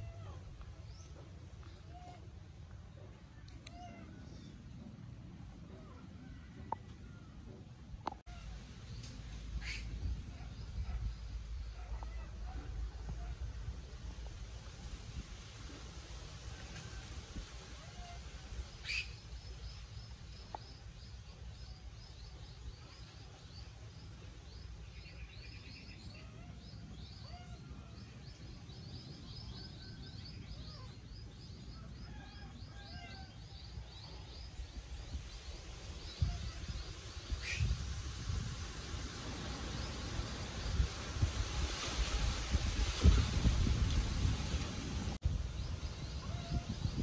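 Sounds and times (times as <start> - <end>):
wind rumble on microphone: 3.8 - 19.0, 25.2 - 47.0.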